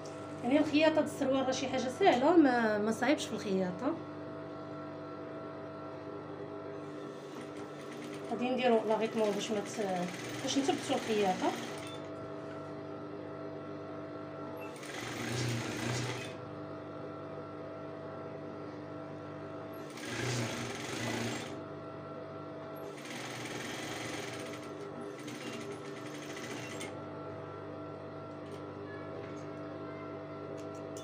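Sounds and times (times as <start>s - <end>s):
sewing machine motor humming: 7.1s - 12.1s, 14.6s - 16.4s, 19.8s - 21.6s, 22.8s - 27.0s
sewing machine stitching: 9.0s - 12.0s, 14.6s - 16.4s, 19.8s - 21.6s, 22.9s - 26.9s.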